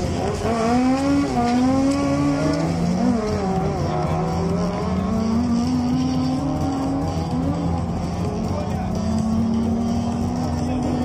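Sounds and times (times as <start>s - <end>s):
race car engine accelerating: 0.0s - 11.0s.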